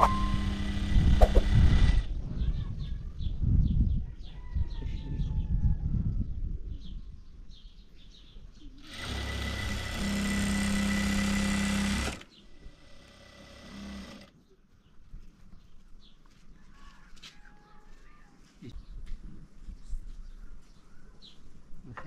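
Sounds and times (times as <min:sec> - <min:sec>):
sewing machine running: 0:00.1 - 0:02.0, 0:08.8 - 0:14.3.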